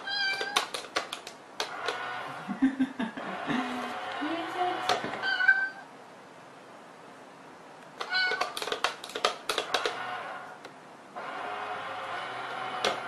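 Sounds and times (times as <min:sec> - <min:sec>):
cat meowing: 0:00.0 - 0:00.7, 0:05.2 - 0:05.9, 0:08.0 - 0:08.6
cat tapping a toy box: 0:00.2 - 0:01.7, 0:08.0 - 0:10.0.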